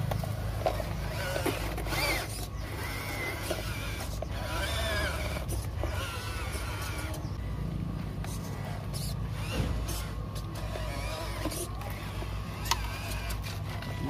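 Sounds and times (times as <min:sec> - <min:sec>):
electric motor whining: 0:00.0 - 0:07.4, 0:08.2 - 0:14.0
steady low hum: 0:00.0 - 0:14.0.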